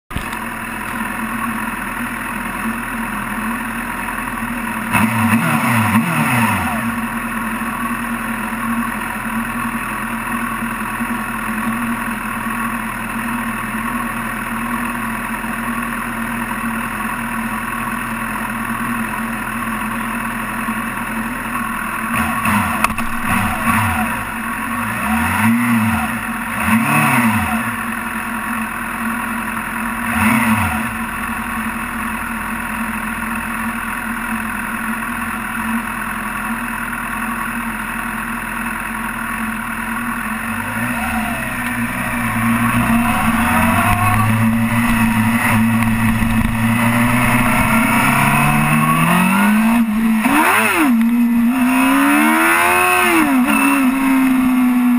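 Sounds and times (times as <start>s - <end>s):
motorcycle throttle blips: 0.1s - 1.1s, 21.5s - 26.6s, 40.0s - 54.9s
motorcycle engine idling: 0.1s - 5.4s, 6.8s - 26.8s, 27.5s - 30.1s, 30.8s - 54.9s.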